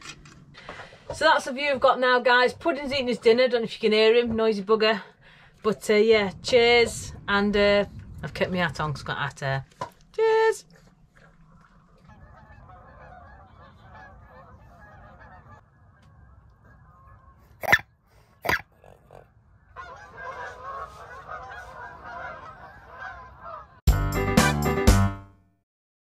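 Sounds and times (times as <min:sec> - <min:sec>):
geese honking: 0:11.8 - 0:17.8, 0:19.6 - 0:23.8
loud music: 0:23.9 - 0:25.2.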